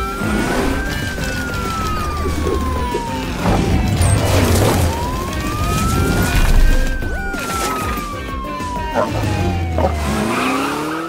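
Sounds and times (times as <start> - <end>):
background music: 0.0 - 11.0
cartoon siren wailing: 0.0 - 11.0
whooshing crashing effects: 0.3 - 7.8.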